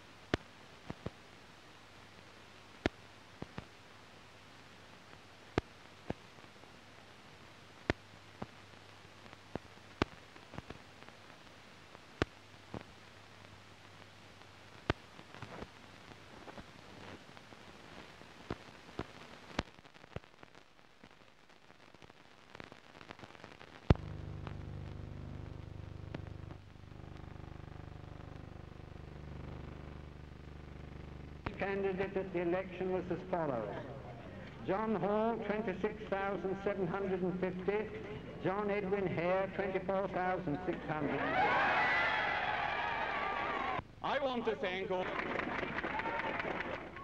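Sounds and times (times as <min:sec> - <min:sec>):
faint hiss and hum: 0:00.0 - 0:47.0
film soundtrack crackle and pops: 0:00.0 - 0:47.0
low rumble with hum: 0:23.9 - 0:31.6.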